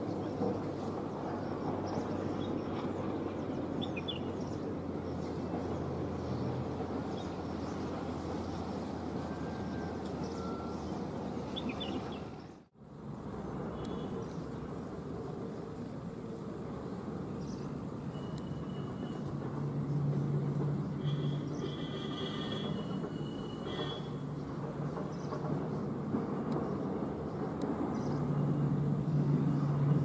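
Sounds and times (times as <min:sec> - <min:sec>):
bird chirps: 0:10.2 - 0:12.6.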